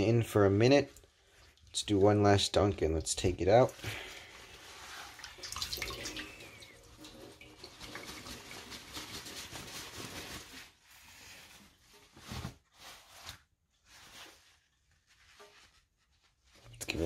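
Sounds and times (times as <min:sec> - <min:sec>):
water dripping into steel sink: 0:05.2 - 0:08.0
fabric handling: 0:07.7 - 0:17.0.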